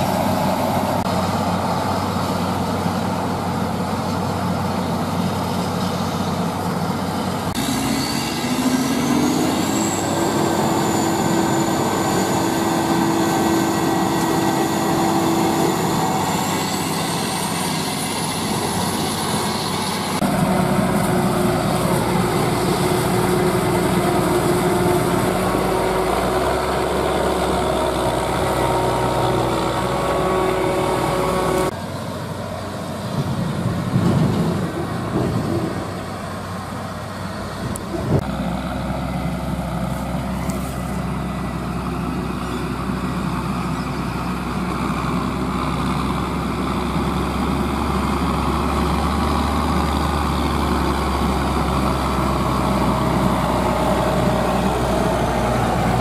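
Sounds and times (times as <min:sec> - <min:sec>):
forage harvester diesel under load: 0:00.0 - 0:56.0
tractor engine working: 0:00.0 - 0:56.0
high machine whine: 0:05.8 - 0:31.8.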